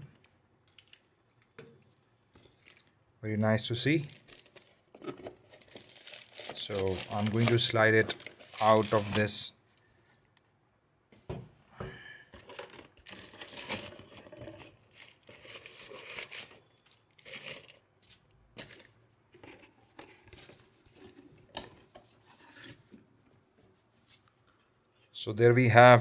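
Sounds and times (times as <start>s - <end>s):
plastic packaging crinkling: 0.7s - 3.0s, 4.0s - 9.5s, 12.4s - 18.9s.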